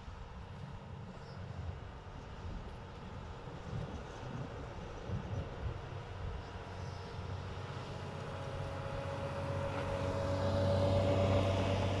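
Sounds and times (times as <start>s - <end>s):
snow clearing machine engine: 7.2s - 12.0s.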